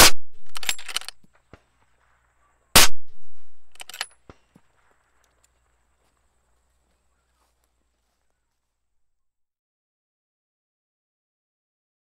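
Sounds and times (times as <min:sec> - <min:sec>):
suppressed rifle shots: 0:00.0 - 0:01.2, 0:02.8 - 0:04.5
sharp clicks and clacks: 0:00.4 - 0:01.7, 0:03.2 - 0:04.6.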